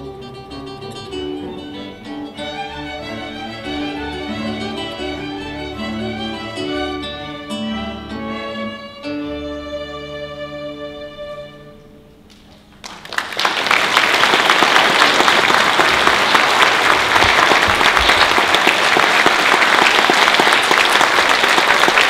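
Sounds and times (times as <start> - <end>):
string orchestra chord: 0.0 - 12.2
audience applause: 12.8 - 22.0.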